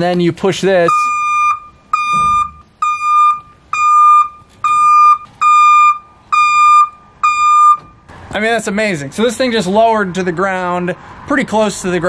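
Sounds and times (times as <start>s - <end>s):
high-pitched warning beeps: 0.8s - 8.0s.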